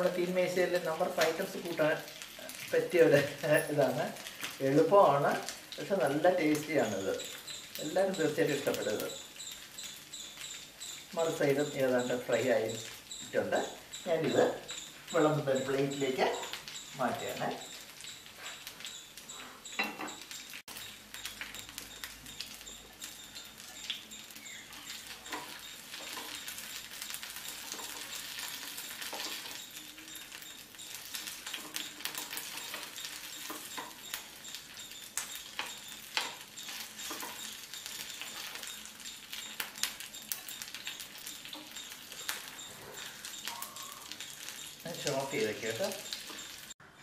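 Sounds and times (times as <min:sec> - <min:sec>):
oil sizzling and crackling: 0:00.0 - 0:47.0
spoons clinking on pan: 0:13.6 - 0:46.7.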